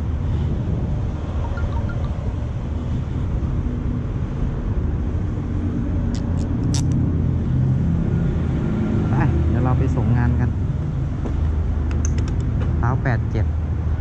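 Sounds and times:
sharp clicks: 11.9s - 12.6s.

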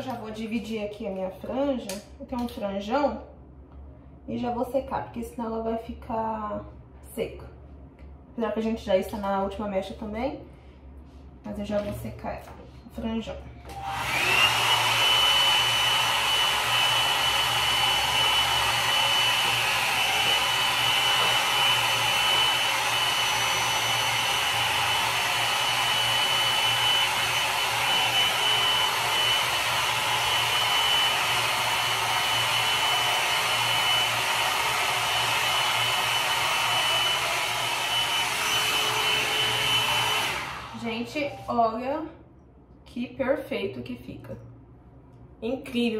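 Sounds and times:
hair dryer brush blowing air: 13.7s - 41.7s.

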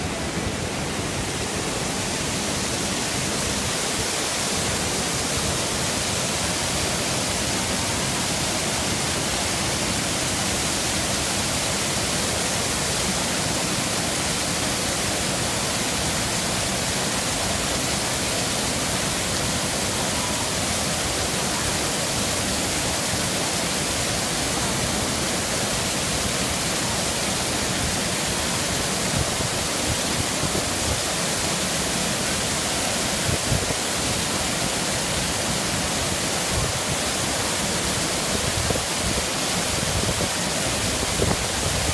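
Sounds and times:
water rushing down waterfall: 0.0s - 41.9s.

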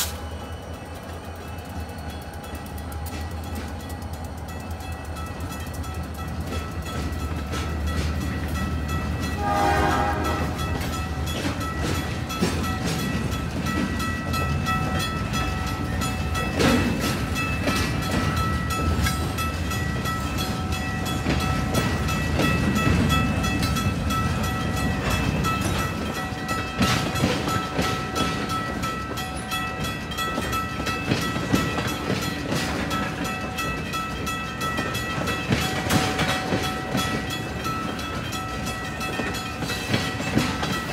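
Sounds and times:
rail cars rolling over track: 0.0s - 40.9s
train horn: 9.4s - 10.8s.

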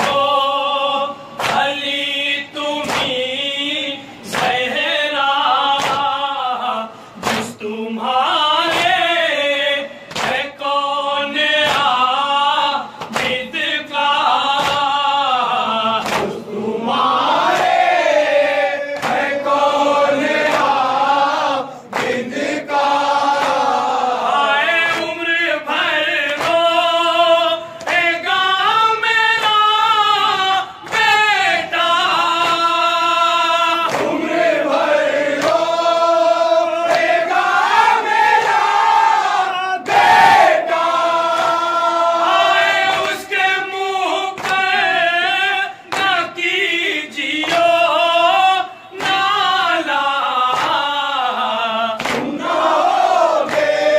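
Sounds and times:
men singing a lament: 0.0s - 53.9s
chest-beating slaps: 1.4s - 1.7s, 2.8s - 3.2s, 5.7s - 6.1s, 7.2s - 7.6s, 10.1s - 10.5s, 13.0s - 13.5s, 14.5s - 15.0s, 16.0s - 16.5s, 18.9s - 19.4s, 21.9s - 22.3s, 23.3s - 23.8s, 33.8s - 35.7s, 52.0s - 52.5s, 53.4s - 53.8s.

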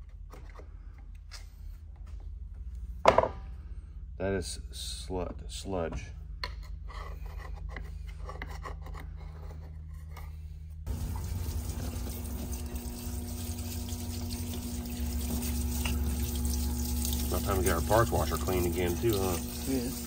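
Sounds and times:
parts washer pump humming: 10.9s - 20.0s
solvent splashing: 10.9s - 20.0s.

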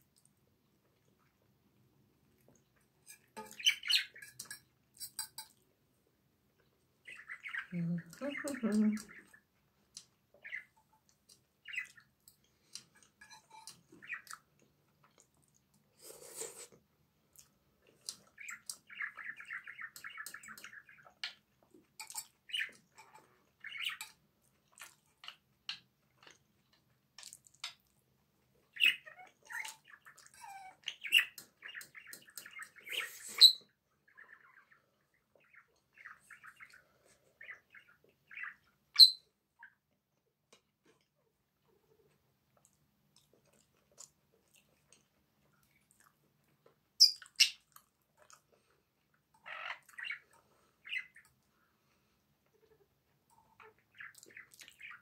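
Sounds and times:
chewing and mouth sounds: 24.5s - 25.3s, 42.0s - 49.1s.

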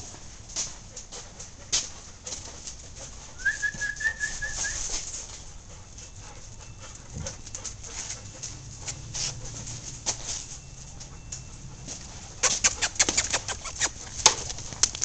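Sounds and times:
quick high chirps: 12.4s - 14.1s
dog claws scrabbling on concrete: 12.4s - 15.0s.

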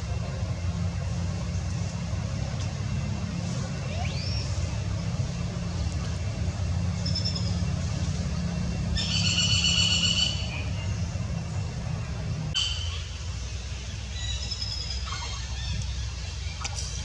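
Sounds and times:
low engine hum: 0.0s - 17.0s
baby monkey squealing: 15.0s - 16.0s.

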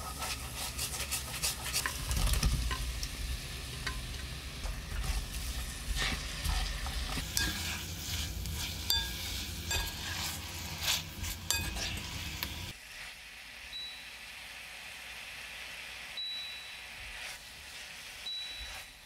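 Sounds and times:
spatula scraping a pan: 0.0s - 2.9s, 3.8s - 13.2s, 16.9s - 19.0s
food sizzling in a frying pan: 0.0s - 19.0s
utensils clinking against pan: 1.0s - 3.1s, 3.8s - 12.7s.

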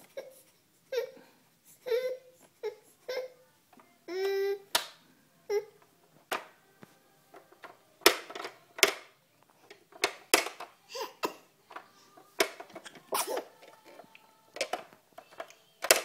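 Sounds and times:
plastic toy clicks and snaps: 7.6s - 9.1s, 14.6s - 16.0s.

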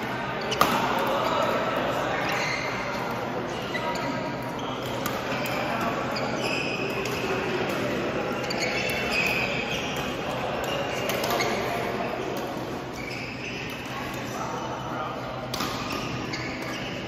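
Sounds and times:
sneakers squeaking on court: 0.2s - 14.5s, 15.4s - 17.0s
racket hitting shuttlecock: 0.6s - 1.1s, 8.8s - 12.6s, 15.5s - 16.8s.

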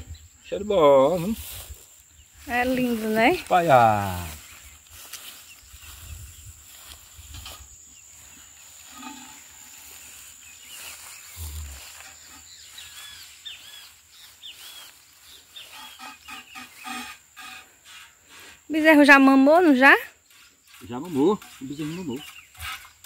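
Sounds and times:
bird chirps: 7.9s - 17.3s, 20.2s - 23.0s.

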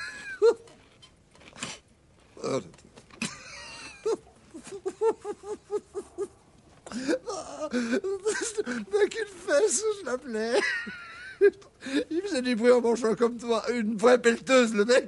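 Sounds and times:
man giggling squeakily: 0.0s - 0.8s, 3.2s - 6.3s, 7.0s - 9.1s.

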